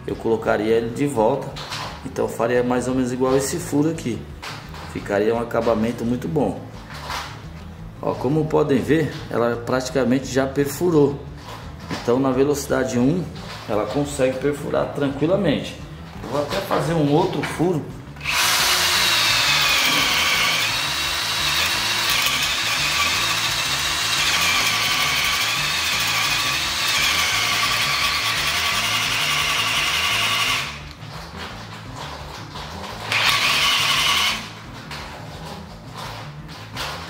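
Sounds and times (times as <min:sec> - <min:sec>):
cordless drill boring into wood: 0:18.2 - 0:30.9, 0:33.0 - 0:34.5.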